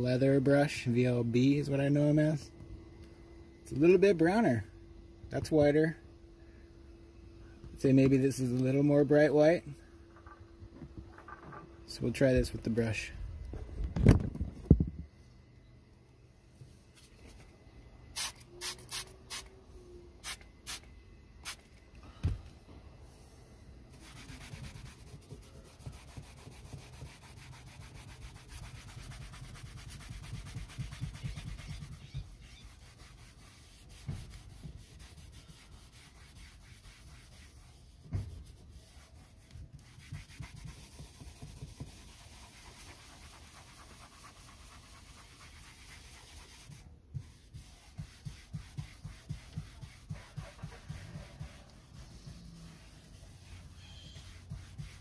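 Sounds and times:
brush scrubbing upholstery: 0:23.9 - 0:55.0.

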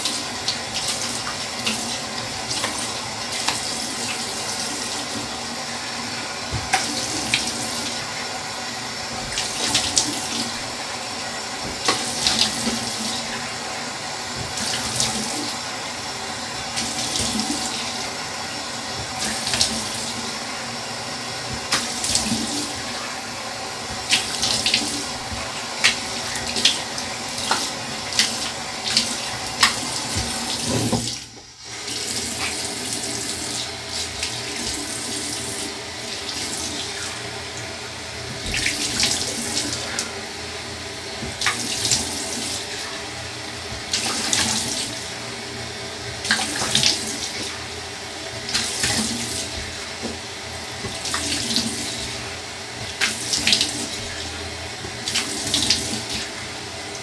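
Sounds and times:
tap water running into sink: 0:00.0 - 0:57.0.

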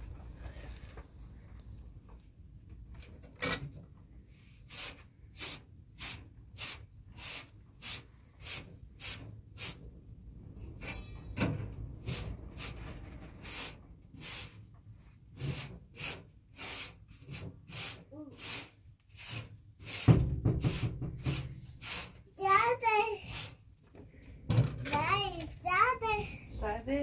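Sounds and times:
short rattle: 0:10.3 - 0:14.0
hand tool scraping back and forth: 0:13.4 - 0:14.7, 0:15.3 - 0:23.6.

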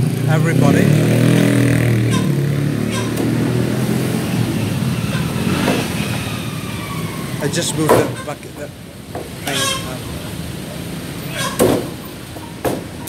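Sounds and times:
sharp knocks: 0:07.8 - 0:08.2, 0:11.5 - 0:12.0, 0:12.6 - 0:13.0.

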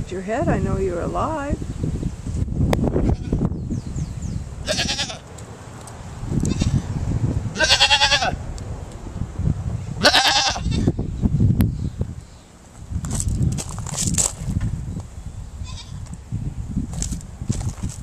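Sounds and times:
goat bleating: 0:04.6 - 0:05.2, 0:07.6 - 0:08.4, 0:10.0 - 0:10.9, 0:15.6 - 0:16.0.

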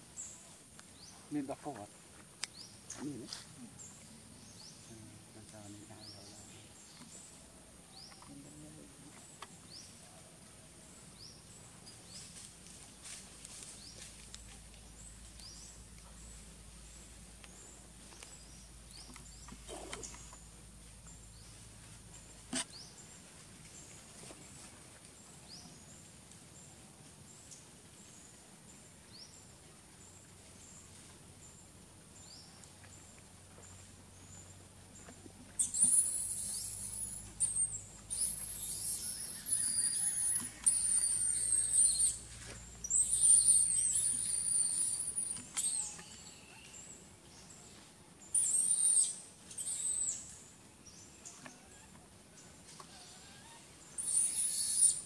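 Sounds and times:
faint small chirps: 0:35.1 - 0:46.9, 0:52.9 - 0:55.0
high wavering animal calls: 0:35.6 - 0:46.8, 0:48.4 - 0:50.3, 0:52.8 - 0:55.0.

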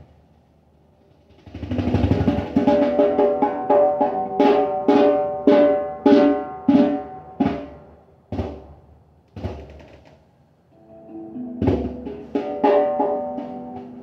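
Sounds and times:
hand drum strokes: 0:11.1 - 0:14.0.

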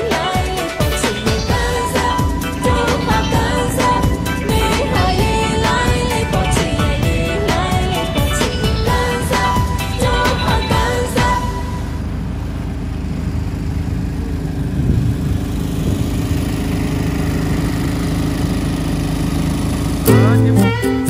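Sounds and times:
guitar music: 0:00.0 - 0:11.0, 0:20.1 - 0:21.0
boat engine humming: 0:00.0 - 0:21.0.

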